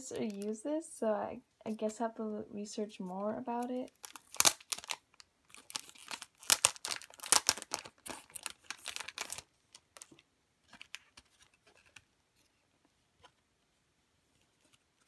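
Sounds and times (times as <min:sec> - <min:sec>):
plastic wrapping crinkling: 0:00.0 - 0:00.6, 0:03.6 - 0:12.1.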